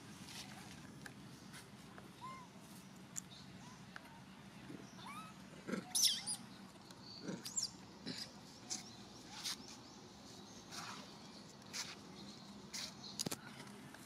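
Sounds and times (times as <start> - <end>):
monkey squeaks and squeals: 5.0 - 6.5.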